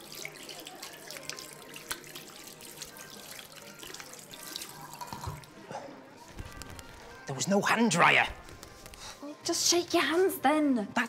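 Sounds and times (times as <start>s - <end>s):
tap water running into sink: 0.0s - 5.5s
water dripping: 0.0s - 5.6s.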